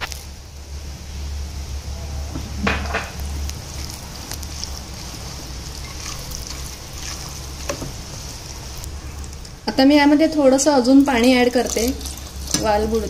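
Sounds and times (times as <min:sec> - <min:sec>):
spatula stirring in a metal pot: 0:03.2 - 0:09.5, 0:10.5 - 0:13.0
spatula scraping and knocking pot: 0:11.6 - 0:13.0.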